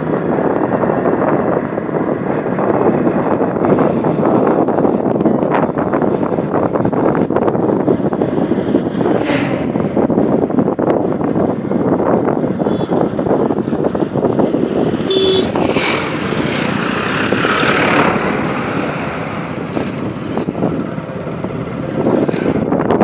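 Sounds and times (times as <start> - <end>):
tractor engine: 0.0 - 22.8
motorcycle road and engine noise: 0.0 - 23.0
wind rushing over microphone: 0.0 - 23.0
brief beep: 15.1 - 15.4.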